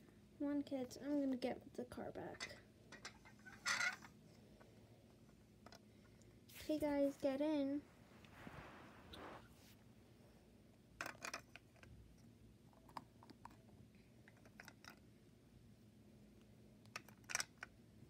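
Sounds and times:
plastic toys clicking: 0:16.9 - 0:17.7.

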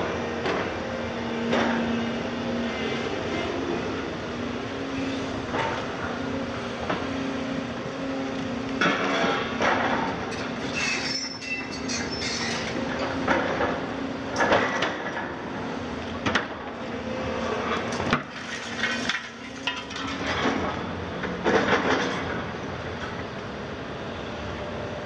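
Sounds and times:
diesel engines and hydraulics droning: 0:00.0 - 0:25.0
clanks and crunches of rubble: 0:08.7 - 0:15.4, 0:17.6 - 0:23.3.

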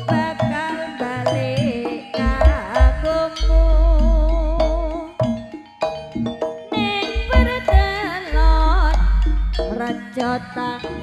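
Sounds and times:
gamelan metallophones striking notes: 0:00.0 - 0:11.0.

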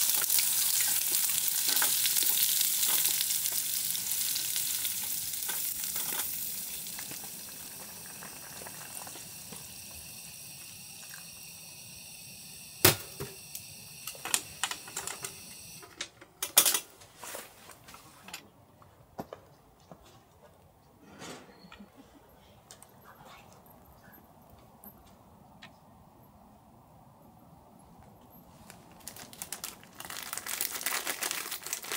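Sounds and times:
food sizzling in a pan: 0:00.0 - 0:15.8.

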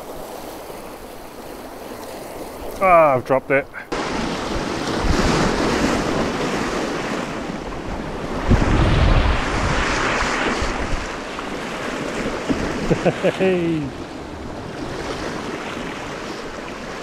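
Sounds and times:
sea surf washing over rocks: 0:00.0 - 0:17.0
wind buffeting microphone: 0:03.9 - 0:13.0.

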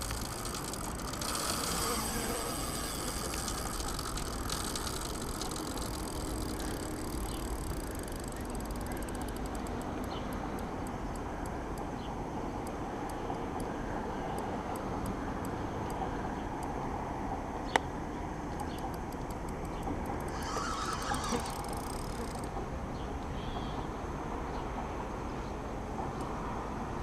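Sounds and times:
fishing reel ticking: 0:00.0 - 0:11.6, 0:18.6 - 0:22.6
sharp click: 0:00.0 - 0:11.9, 0:18.5 - 0:20.4, 0:21.3 - 0:22.6.

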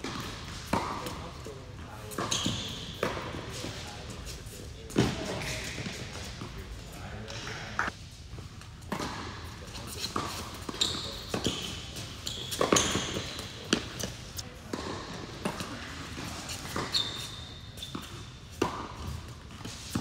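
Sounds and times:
shoes squeaking on court: 0:00.0 - 0:07.9, 0:08.8 - 0:20.0
racquets hitting ball: 0:10.1 - 0:17.2.

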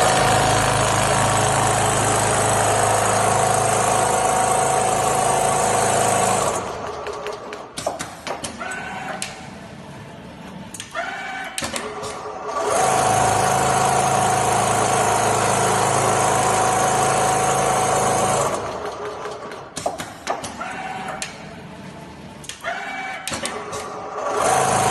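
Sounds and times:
sewing machine humming: 0:00.0 - 0:07.3, 0:12.3 - 0:19.6, 0:24.1 - 0:24.9.

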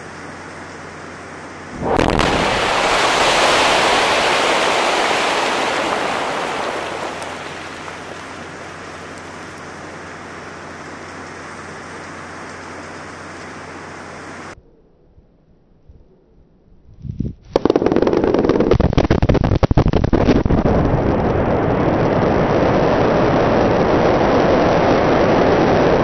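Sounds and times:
heavy rumble: 0:01.6 - 0:15.4
wind on microphone: 0:01.7 - 0:08.6, 0:16.8 - 0:26.0
rock blast boom: 0:01.7 - 0:09.2.

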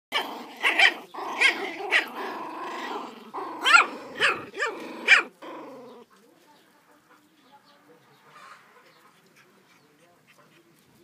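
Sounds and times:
puppies growling: 0:00.1 - 0:06.2.

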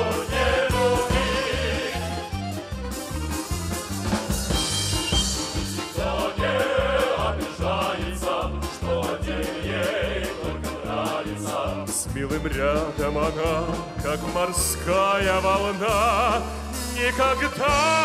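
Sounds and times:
folk instrument band playing: 0:00.0 - 0:06.5, 0:11.9 - 0:18.0
accordions: 0:00.0 - 0:18.0
drum kit: 0:00.0 - 0:18.0.

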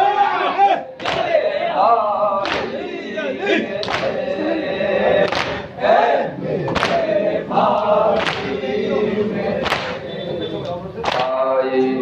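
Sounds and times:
men chanting together: 0:00.0 - 0:12.0
hands slapping chests: 0:01.0 - 0:01.3, 0:02.4 - 0:02.8, 0:03.8 - 0:04.2, 0:05.3 - 0:05.6, 0:06.7 - 0:07.0, 0:08.2 - 0:08.6, 0:09.6 - 0:10.0.

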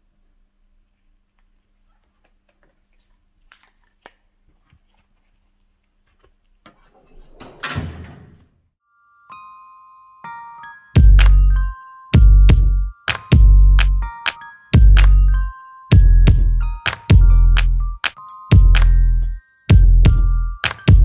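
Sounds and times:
metal drawer rolling shut: 0:06.9 - 0:08.5
electronic music tones: 0:09.3 - 0:21.0.

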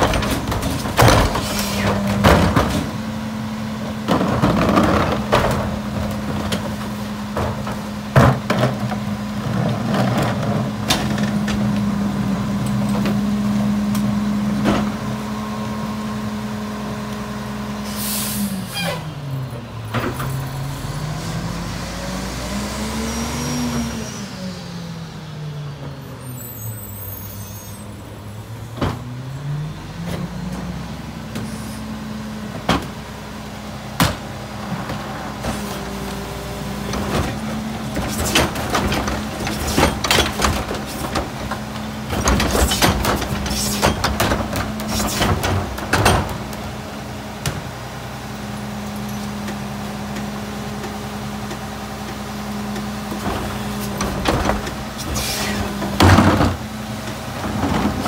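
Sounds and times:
cart knocks and clanks: 0:00.0 - 0:03.0, 0:36.9 - 0:46.7, 0:53.1 - 0:58.0
garbage truck diesel engine: 0:00.0 - 0:58.0
air brake hiss: 0:01.4 - 0:01.9, 0:17.8 - 0:19.1
hydraulics working: 0:26.6 - 0:58.0.

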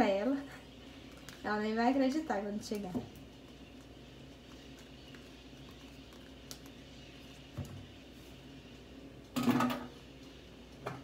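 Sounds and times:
kitchenware clattering: 0:09.4 - 0:10.0.

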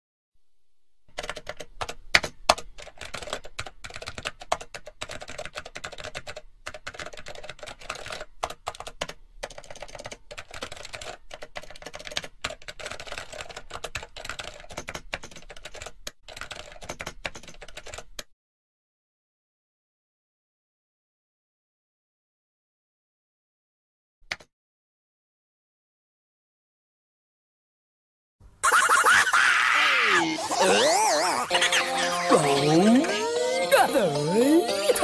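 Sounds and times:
fast typing on keyboard: 0:01.1 - 0:18.3.

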